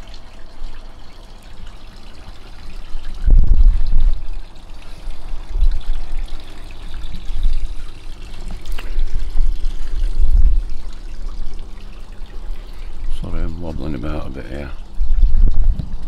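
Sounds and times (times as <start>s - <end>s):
wind buffeting microphone: 3.1s - 4.3s, 9.0s - 10.7s, 15.0s - 16.0s.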